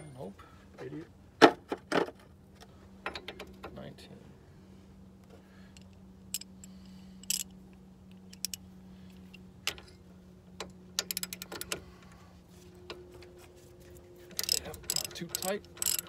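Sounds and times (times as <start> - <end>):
steady low hum: 0.0 - 16.0
metallic tool clicks and clinks: 5.8 - 7.5, 8.2 - 8.6, 14.4 - 16.0
ratchet clicks: 5.8 - 7.5, 8.1 - 8.6, 11.0 - 11.8, 14.3 - 16.0.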